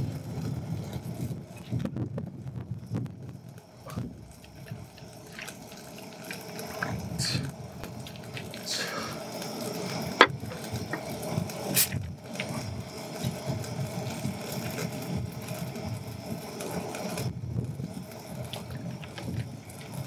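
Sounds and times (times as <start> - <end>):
low outdoor rumble: 0.0 - 20.0
short hiss: 7.2 - 7.5, 8.6 - 9.2, 11.7 - 12.0.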